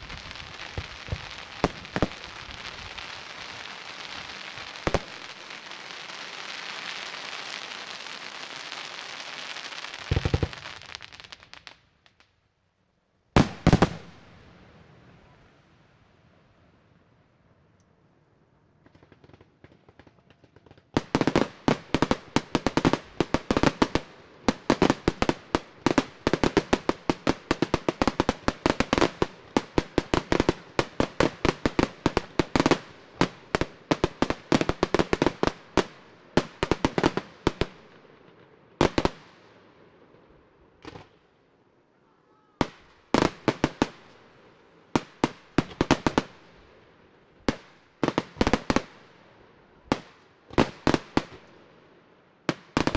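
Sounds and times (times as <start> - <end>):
fireworks bangs: 0.0 - 12.2, 13.4 - 14.4, 52.5 - 52.9.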